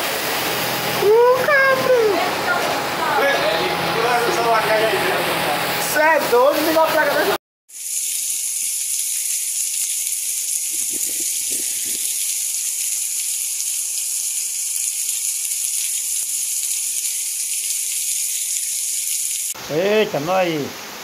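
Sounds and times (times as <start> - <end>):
heavy rain pouring: 0.0 - 5.7, 10.5 - 14.8.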